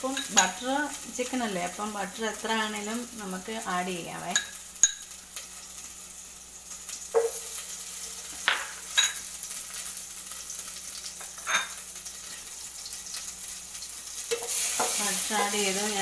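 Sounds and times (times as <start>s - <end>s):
butter sizzling in a pot: 0.0s - 16.0s
spoon scraping and clinking pot: 11.3s - 11.8s.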